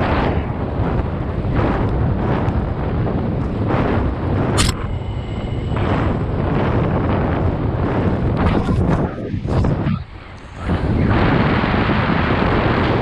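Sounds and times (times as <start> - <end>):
tyre and road rumble: 0.0 - 13.0
wind buffeting camera microphone: 0.0 - 13.0
sharp click: 4.6 - 5.0.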